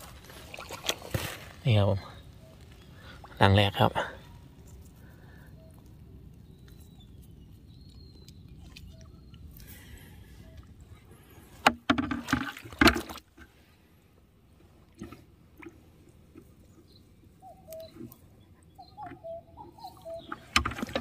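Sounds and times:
water splashing and sloshing: 0:00.0 - 0:21.0
small water drips: 0:04.6 - 0:11.0.

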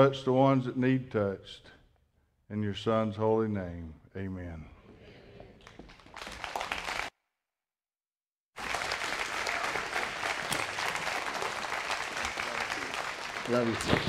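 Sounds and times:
congregation applauding: 0:05.6 - 0:07.1, 0:08.6 - 0:14.0.

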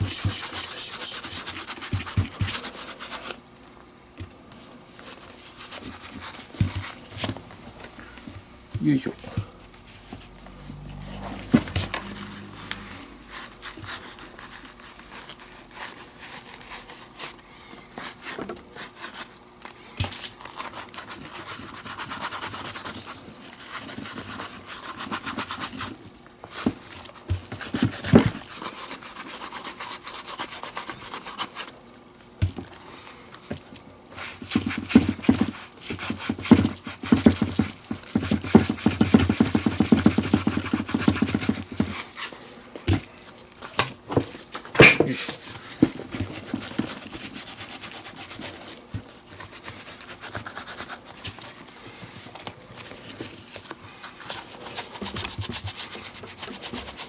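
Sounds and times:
stiff brush scrubbing leather: 0:00.0 - 0:03.4, 0:11.0 - 0:17.3, 0:27.6 - 0:31.7, 0:46.3 - 0:51.6.

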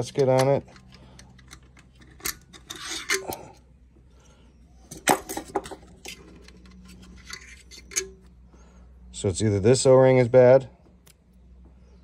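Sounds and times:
plastic parts clicking and scraping: 0:00.0 - 0:03.6, 0:04.9 - 0:08.3.

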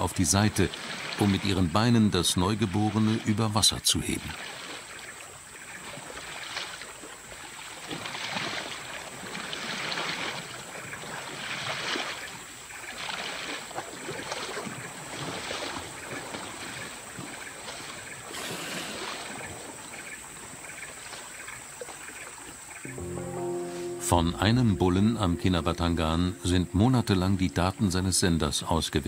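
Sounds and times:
water sloshing and splashing: 0:00.0 - 0:01.7, 0:04.0 - 0:23.0.

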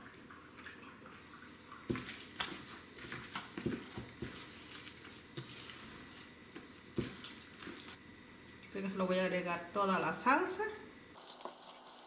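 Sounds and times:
wet squishing of dough by hand: 0:01.7 - 0:08.8.

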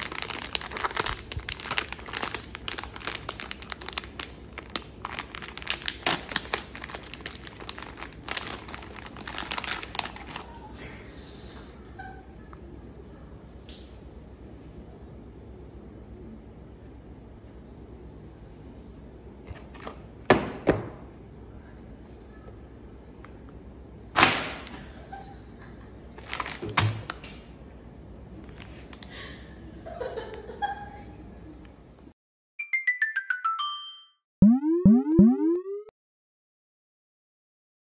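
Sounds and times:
plastic wrapper crinkling and tearing: 0:00.0 - 0:10.7, 0:26.2 - 0:27.3.

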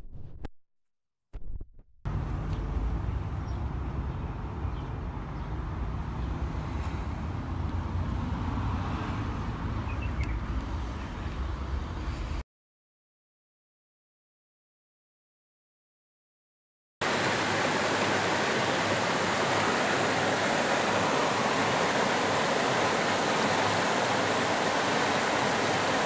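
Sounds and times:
distant traffic rumble: 0:02.1 - 0:12.2, 0:17.0 - 0:26.0.

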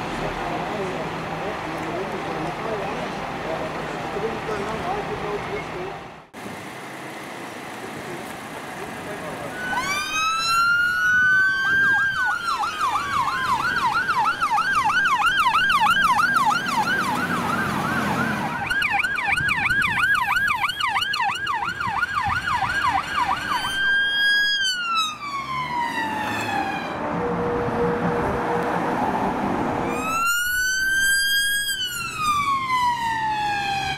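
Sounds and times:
emergency vehicle siren: 0:09.3 - 0:33.9.

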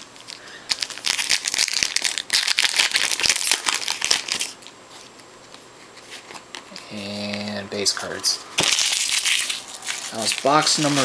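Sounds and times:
foil wrapper crinkling: 0:00.0 - 0:05.2, 0:08.6 - 0:11.0.

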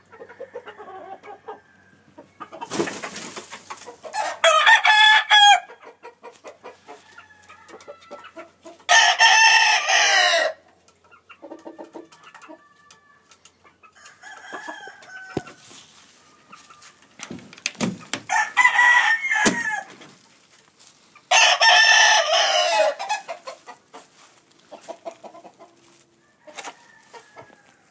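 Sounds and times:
rooster clucks and calls: 0:00.0 - 0:02.7, 0:03.6 - 0:17.1, 0:21.3 - 0:27.9
roosters crowing: 0:00.0 - 0:02.8, 0:04.0 - 0:05.8, 0:06.7 - 0:10.6, 0:13.9 - 0:20.2, 0:21.3 - 0:24.3, 0:25.8 - 0:27.9.

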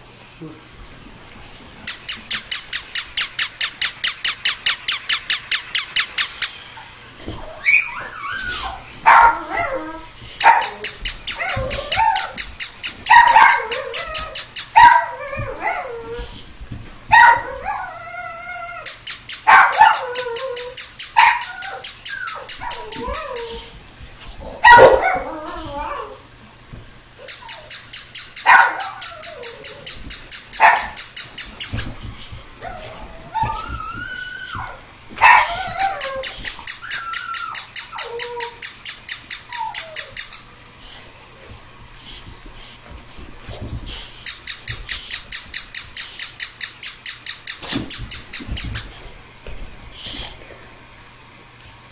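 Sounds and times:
electronic toy dog yips: 0:01.9 - 0:06.8, 0:07.6 - 0:09.7, 0:10.4 - 0:15.2, 0:18.7 - 0:23.6, 0:27.2 - 0:32.0, 0:35.2 - 0:40.4, 0:44.2 - 0:48.9
dog whining: 0:05.8 - 0:16.4, 0:17.2 - 0:23.8, 0:24.6 - 0:26.2, 0:27.2 - 0:32.0, 0:32.6 - 0:40.4
dog barking: 0:13.1 - 0:13.7, 0:19.5 - 0:20.0, 0:24.7 - 0:25.2, 0:28.4 - 0:28.9, 0:30.6 - 0:31.0, 0:35.2 - 0:35.6.

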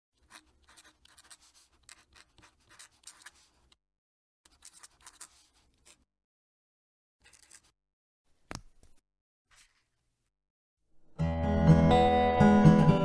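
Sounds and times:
fountain pen scratching on paper: 0:00.2 - 0:03.8, 0:04.5 - 0:06.1, 0:07.2 - 0:07.7.

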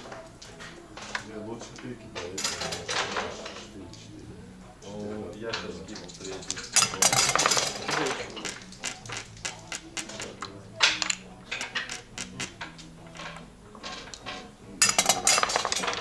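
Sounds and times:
background music: 0:00.0 - 0:16.0
checkers clicking on board: 0:06.1 - 0:16.0
dice rattling in hand: 0:06.6 - 0:12.6.

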